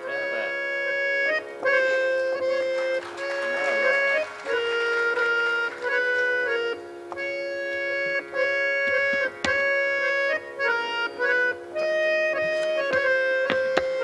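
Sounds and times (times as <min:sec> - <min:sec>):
harmonium melody over drone: 0:00.0 - 0:14.0
short sharp knocks: 0:08.9 - 0:09.8, 0:12.4 - 0:14.0.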